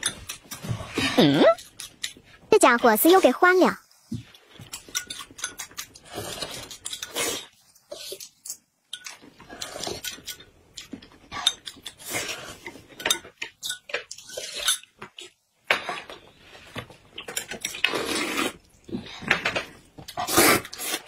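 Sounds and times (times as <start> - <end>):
slurping and eating: 4.3 - 21.0
spoons clinking on bowls: 13.0 - 14.0.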